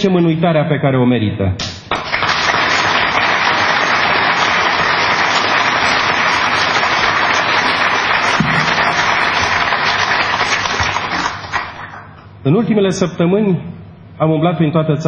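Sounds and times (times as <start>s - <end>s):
crowd applauding: 1.9s - 12.2s.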